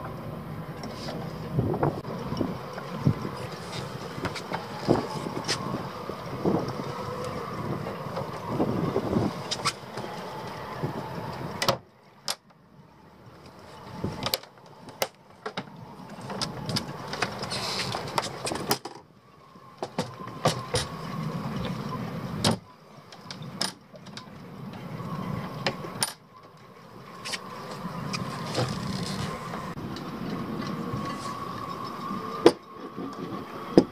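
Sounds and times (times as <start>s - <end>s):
steady outdoor background: 0.0s - 33.9s.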